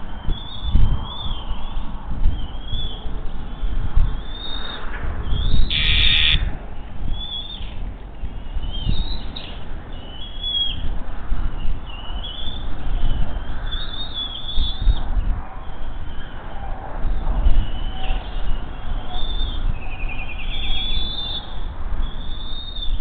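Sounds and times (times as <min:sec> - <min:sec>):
harsh bird call: 0:05.6 - 0:06.6
eaglets begging calls: 0:05.7 - 0:06.5.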